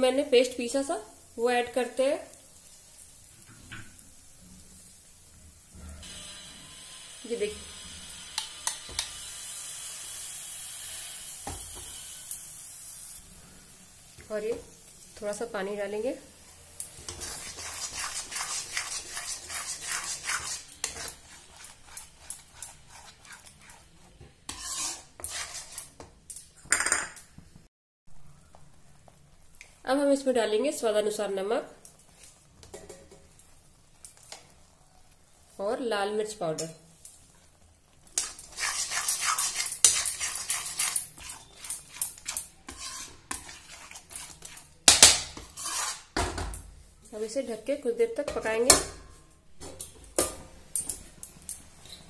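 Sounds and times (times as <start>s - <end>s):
metal spatula scraping metal pan: 17.0s - 26.0s, 38.2s - 46.2s.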